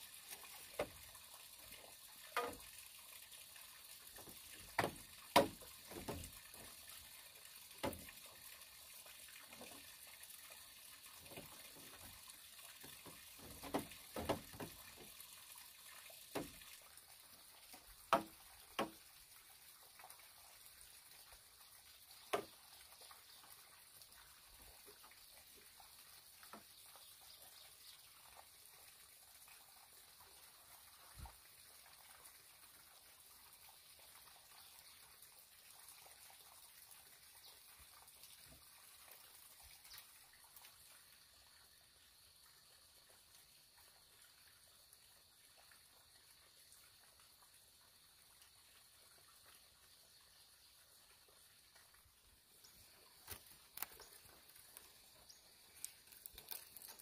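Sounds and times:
faint steady hiss: 0.0s - 57.0s
hollow knocks of bamboo poles: 0.7s - 1.0s, 2.3s - 2.7s, 4.2s - 6.7s, 7.8s - 8.1s, 12.9s - 15.1s, 16.3s - 16.6s, 18.1s - 19.0s.

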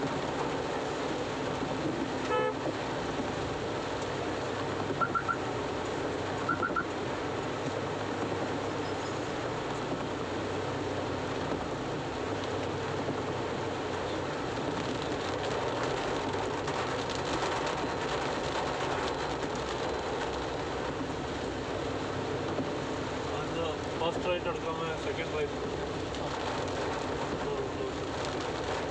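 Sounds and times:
heavy rain on car roof: 0.0s - 28.9s
tyres hissing on wet road: 0.0s - 28.9s
vehicle beeps: 5.0s - 5.4s, 6.5s - 6.9s.

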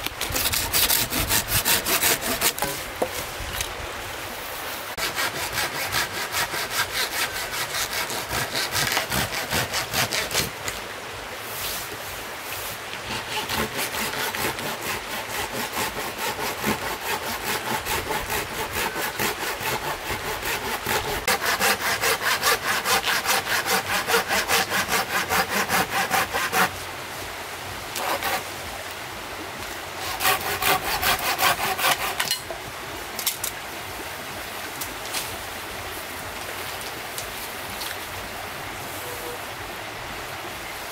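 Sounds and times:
pruning saw cutting wood: 0.0s - 3.0s, 5.0s - 10.8s, 13.0s - 26.8s, 28.0s - 28.5s, 30.0s - 32.4s
flowing stream: 0.0s - 40.9s.

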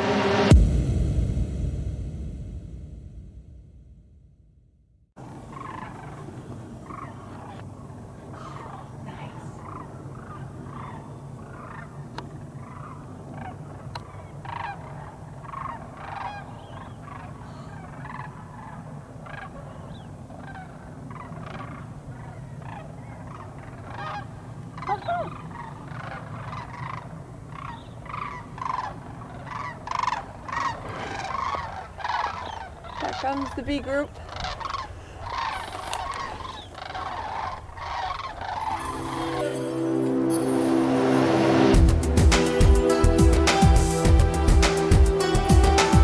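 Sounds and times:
cranes calling in flight: 5.2s - 39.4s.

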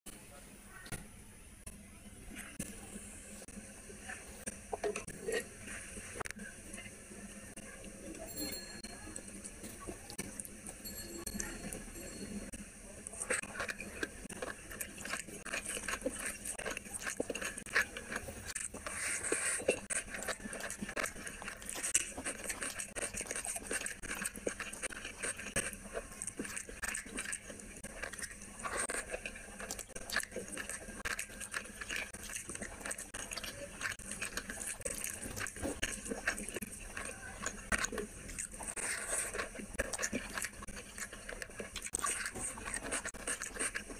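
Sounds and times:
wet squishing of food mixed by hand: 12.5s - 43.9s.

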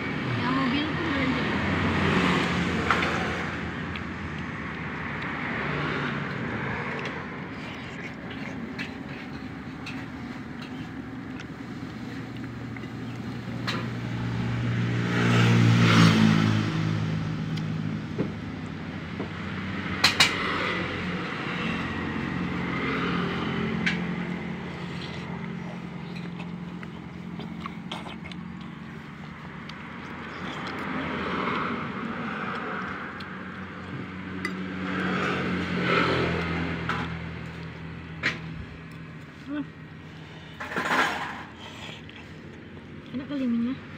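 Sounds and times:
vehicle engine passing: 0.0s - 43.9s.

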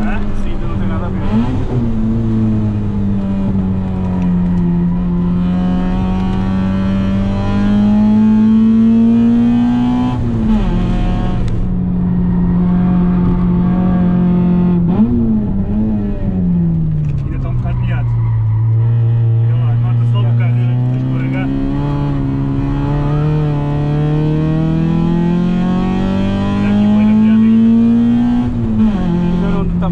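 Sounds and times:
car engine revving: 0.0s - 29.9s.

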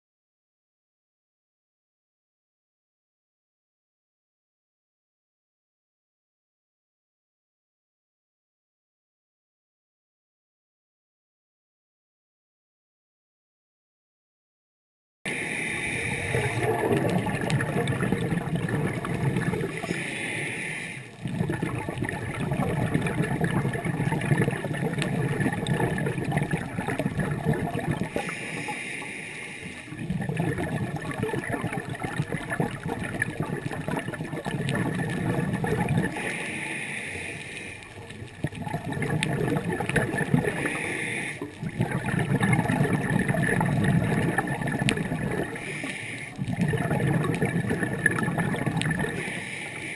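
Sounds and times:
regulator inhale hiss: 15.3s - 16.8s, 19.7s - 21.2s, 28.1s - 30.0s, 36.1s - 38.1s, 40.5s - 41.6s, 45.6s - 46.4s, 49.1s - 49.9s
exhaled bubbles rushing: 15.3s - 20.2s, 21.1s - 28.8s, 29.8s - 36.4s, 37.4s - 49.6s.

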